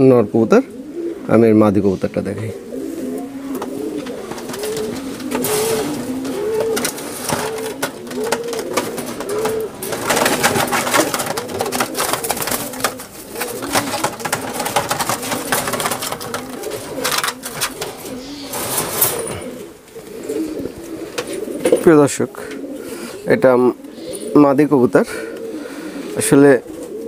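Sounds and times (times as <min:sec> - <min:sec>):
pigeons cooing: 0:00.0 - 0:27.0
rustling and clattering in wire cage: 0:02.9 - 0:21.9.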